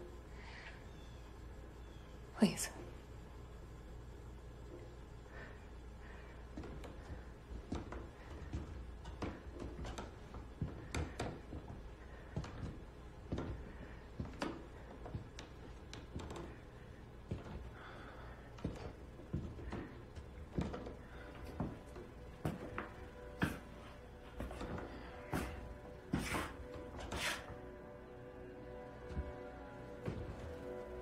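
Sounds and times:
footsteps on wooden floorboards: 6.0 - 27.6, 28.7 - 31.0
low sustained music tone: 21.1 - 31.0.

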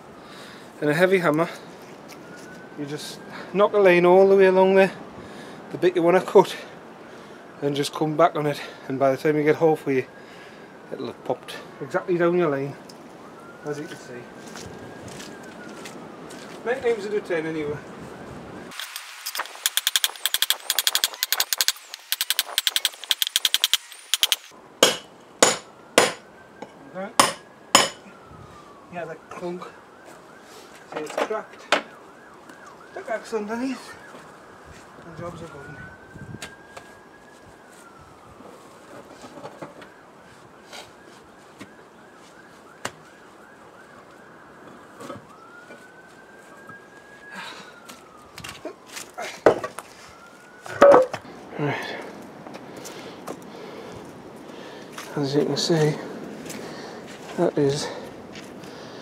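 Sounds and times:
faint emergency vehicle siren: 0.0 - 59.0
hammer tapping chisel: 27.2 - 28.0
heavy hammer blows thudding: 27.2 - 28.0
concrete slab knocks: 50.7 - 51.2.

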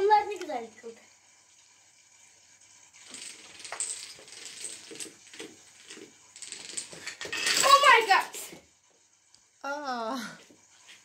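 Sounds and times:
dominoes toppling and clattering: 3.0 - 8.2.

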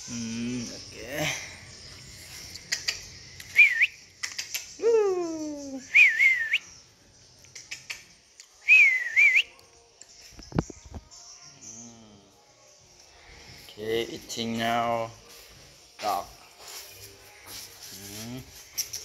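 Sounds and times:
person whistling: 3.6 - 4.0, 4.8 - 6.6, 8.6 - 9.5.

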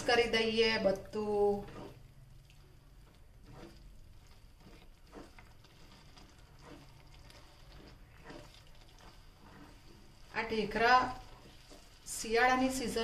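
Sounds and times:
spatula scraping and squishing: 0.0 - 13.0.

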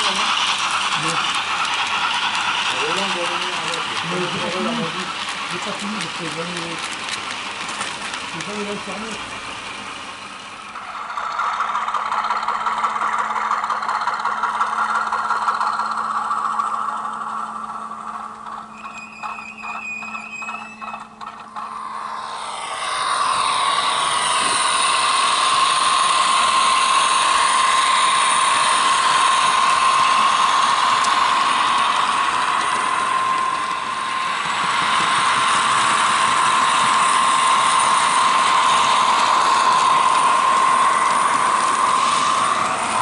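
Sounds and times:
model train motor whine: 0.0 - 43.0
wheel and rail noise: 0.0 - 43.0
high squeal: 18.6 - 43.0.

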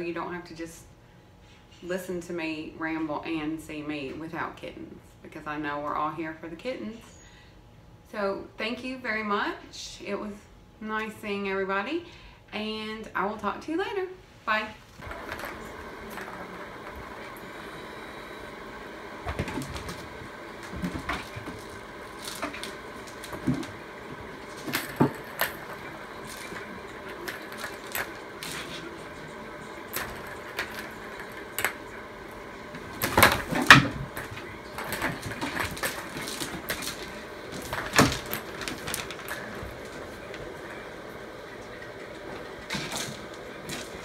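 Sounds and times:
steady room hum: 0.0 - 44.0
kitten knocking and rattling toys: 19.3 - 28.8, 32.8 - 40.5.

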